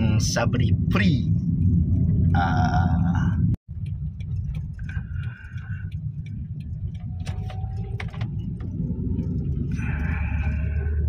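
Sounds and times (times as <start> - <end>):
engine and road rumble: 0.0 - 11.0
light ticks and clicks: 3.8 - 9.7.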